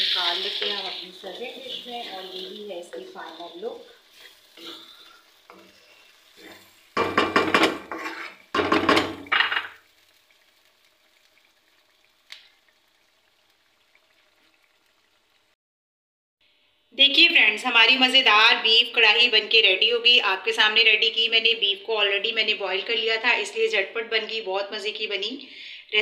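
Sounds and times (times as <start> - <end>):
spatula scraping metal pan: 0.0 - 9.8
thick sauce sizzling: 0.0 - 15.6.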